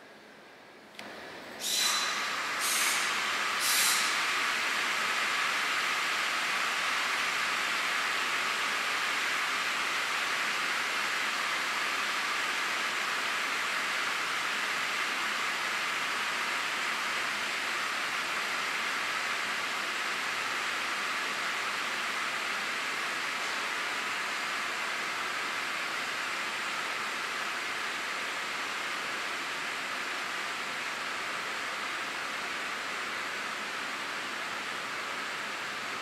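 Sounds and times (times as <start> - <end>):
air hissing: 1.6 - 4.6.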